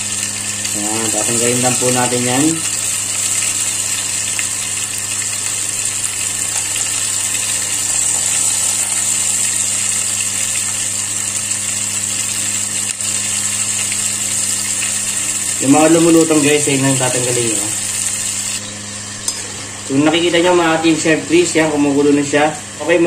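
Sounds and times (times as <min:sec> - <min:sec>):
electric hum: 0:00.0 - 0:23.0
high hiss: 0:06.6 - 0:11.4.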